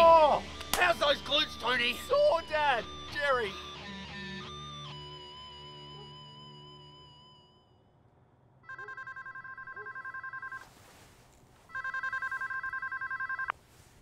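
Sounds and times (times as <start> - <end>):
telephone ringing electronic trill: 8.6 - 10.7, 11.7 - 13.5.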